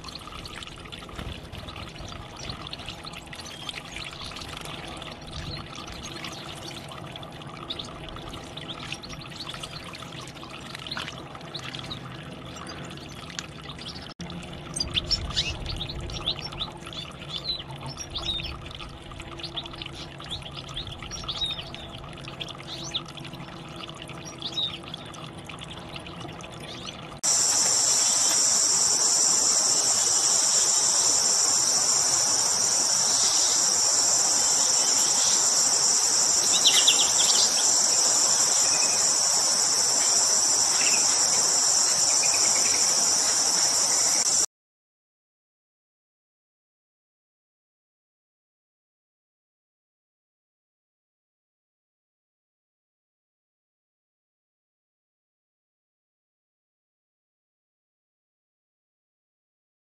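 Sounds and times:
goldfinch twittering: 0:14.7 - 0:18.6, 0:19.4 - 0:23.2, 0:26.7 - 0:44.4
high-pitched insect chorus: 0:27.2 - 0:44.5.

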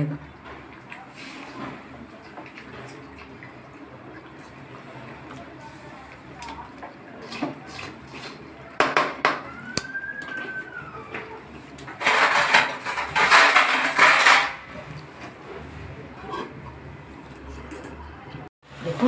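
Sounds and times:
metal scraping and rattling: 0:11.9 - 0:14.8.

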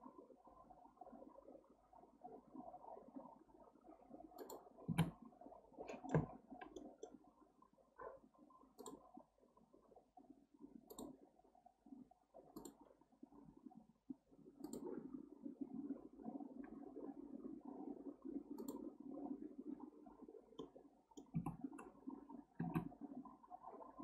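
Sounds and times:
computer mouse clicking: 0:04.4 - 0:05.2, 0:05.9 - 0:07.2, 0:08.8 - 0:09.0, 0:10.9 - 0:11.2, 0:12.5 - 0:12.8, 0:14.6 - 0:15.0, 0:18.6 - 0:18.9, 0:20.6 - 0:22.0, 0:22.6 - 0:22.9.

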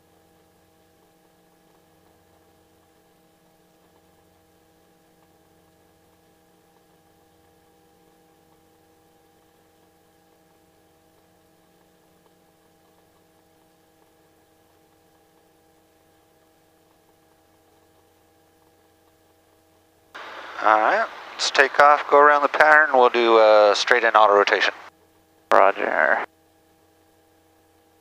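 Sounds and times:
faint steady engine hum: 0:19.5 - 0:26.3.

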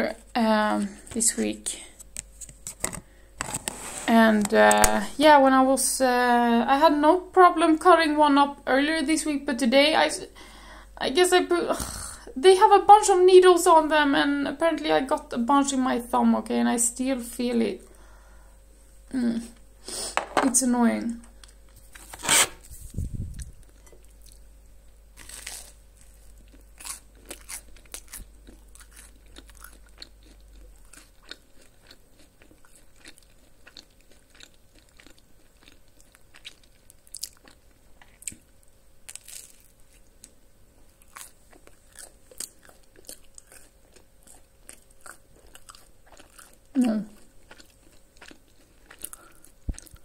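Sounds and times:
toast crunching while chewed: 0:25.2 - 0:50.0.

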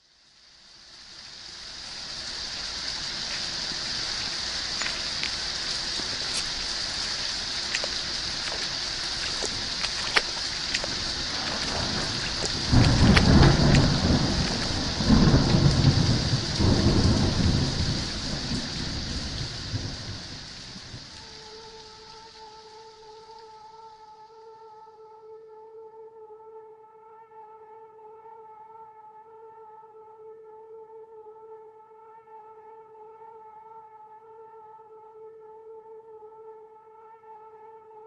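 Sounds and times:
steady rain falling: 0:00.0 - 0:25.0
drips: 0:01.2 - 0:22.6
thunder rumbling: 0:02.0 - 0:21.2.

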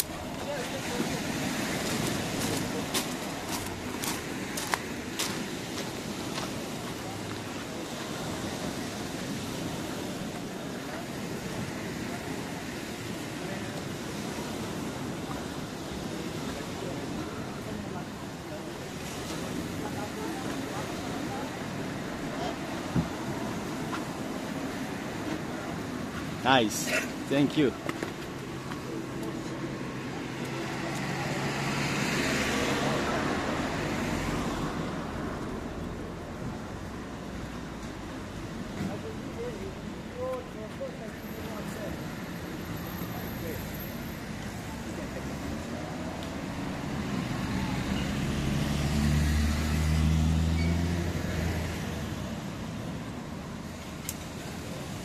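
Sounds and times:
steady traffic noise: 0:00.0 - 0:55.0
vehicle passing by: 0:29.0 - 0:37.3, 0:44.7 - 0:53.0
vehicle engine driving past: 0:47.0 - 0:52.2.

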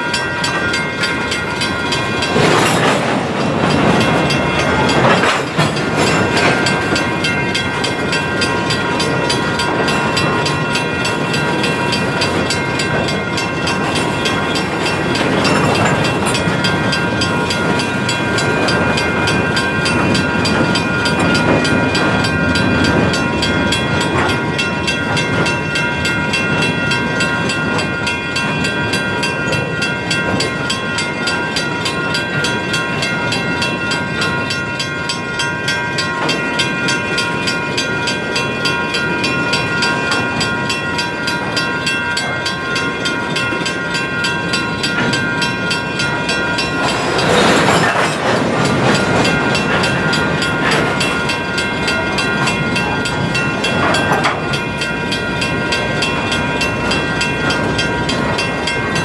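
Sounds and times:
train cars rumbling on rails: 0:00.0 - 0:59.0.

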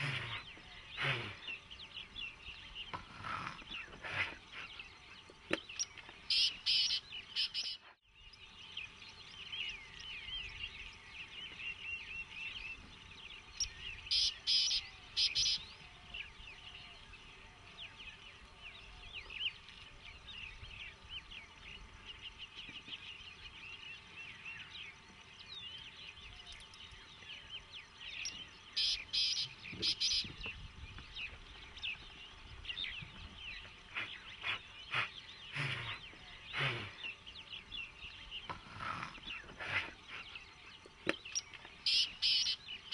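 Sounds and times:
birds chirping chorus: 0:00.0 - 0:42.9
loud high bird call: 0:14.1 - 0:15.8, 0:28.2 - 0:30.3, 0:41.8 - 0:42.9.

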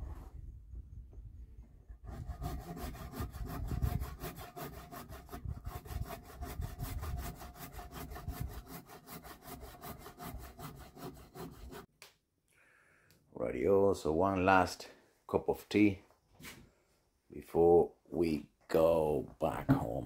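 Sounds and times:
hand saw cutting log: 0:02.0 - 0:11.9.

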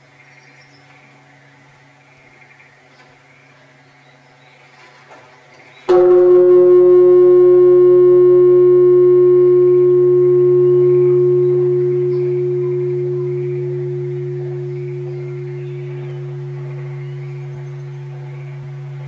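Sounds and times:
large temple bell ringing: 0:05.9 - 0:19.0.

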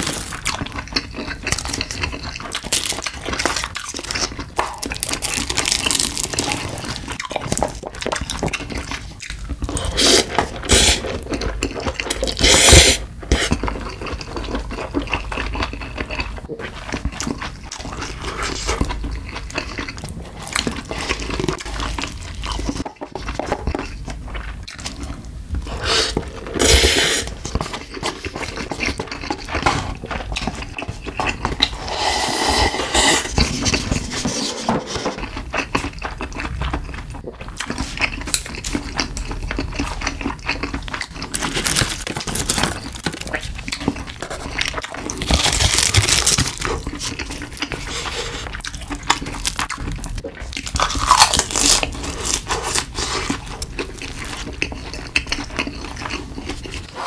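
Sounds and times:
wet chewing: 0:00.0 - 0:34.3, 0:35.0 - 0:57.0
slurping noodles: 0:09.7 - 0:13.6, 0:25.7 - 0:27.5, 0:31.6 - 0:35.2, 0:44.2 - 0:49.1.

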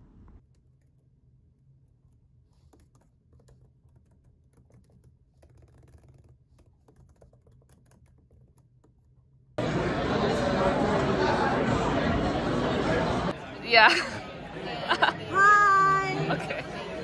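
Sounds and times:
laptop keyboard typing: 0:02.6 - 0:09.2.

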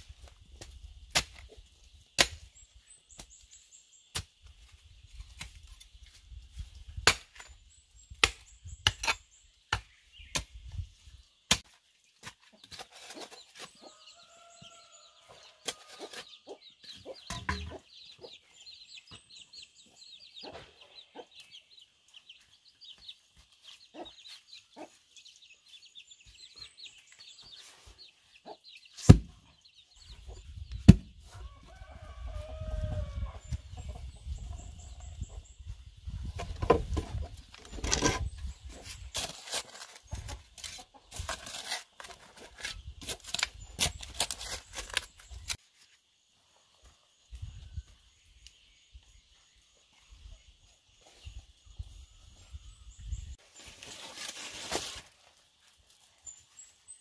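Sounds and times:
chickens clucking: 0:20.4 - 0:22.2, 0:23.4 - 0:25.2
soil being shovelled: 0:37.6 - 0:45.6.

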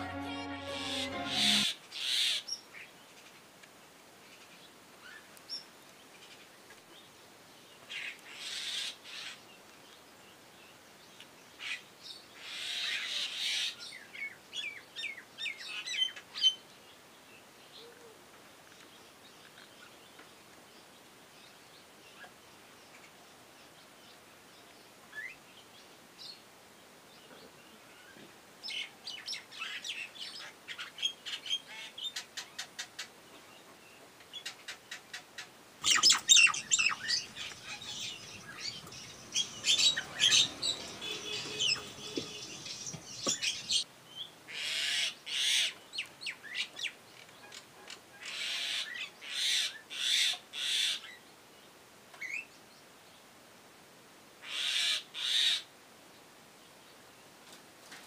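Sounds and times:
birds clicking chatter: 0:34.5 - 0:43.8
birds harsh rasping squawks: 0:34.9 - 0:43.8.

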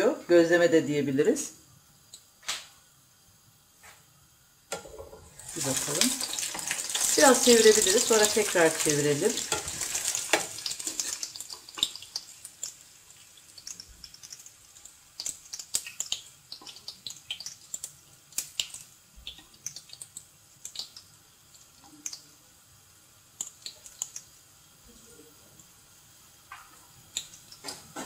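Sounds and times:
hot oil crackling and popping: 0:02.0 - 0:28.0.

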